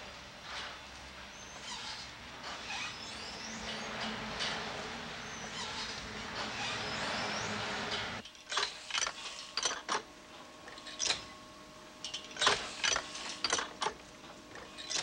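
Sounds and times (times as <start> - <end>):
mechanical clicks and knocks: 8.2 - 10.1, 12.0 - 15.0.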